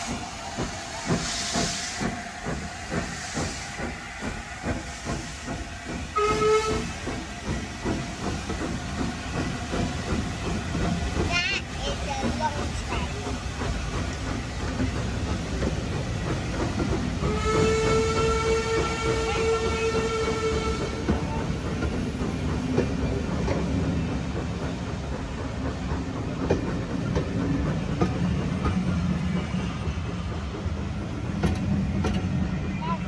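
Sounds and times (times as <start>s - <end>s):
train coaches rumbling past: 0.0s - 33.0s
steam locomotive whistle: 6.1s - 7.0s, 17.2s - 21.3s.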